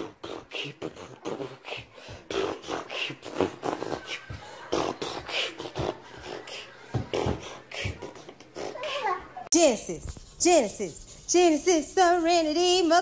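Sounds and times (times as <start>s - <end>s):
person beatboxing: 0.0s - 9.3s.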